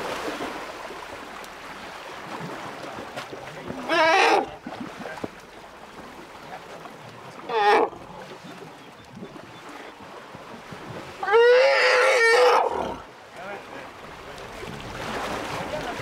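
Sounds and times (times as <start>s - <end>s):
faint water splashing: 0.0s - 16.0s
elephant calf trumpeting: 3.8s - 4.5s, 7.5s - 8.0s, 11.2s - 13.0s.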